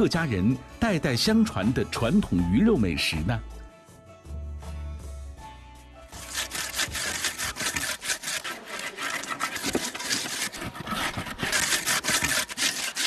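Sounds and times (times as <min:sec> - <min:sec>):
sweet potatoes rasping in grinding bowl: 0:06.2 - 0:13.0.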